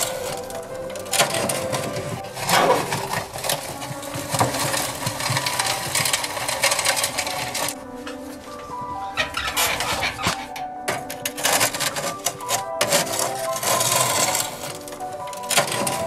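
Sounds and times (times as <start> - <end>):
coals rattling in metal ash sifter: 0.0 - 8.2, 9.2 - 16.0.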